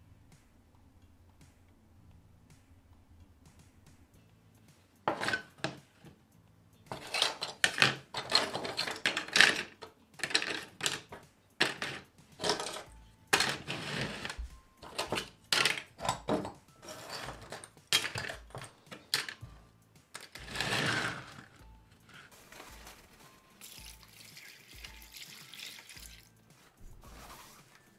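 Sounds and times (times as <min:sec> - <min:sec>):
small parts clattering on a table: 0:05.1 - 0:06.2, 0:06.9 - 0:19.5, 0:20.2 - 0:21.6
parts dropped into a plastic tray: 0:06.9 - 0:19.4.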